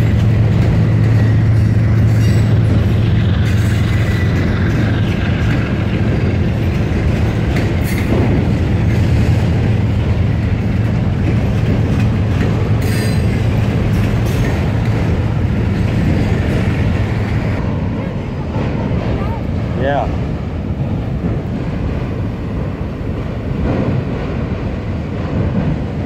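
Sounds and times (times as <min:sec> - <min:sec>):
train wheels rumbling on rail: 0:00.0 - 0:26.0
metallic wheel squeal: 0:01.1 - 0:02.6, 0:12.8 - 0:13.4.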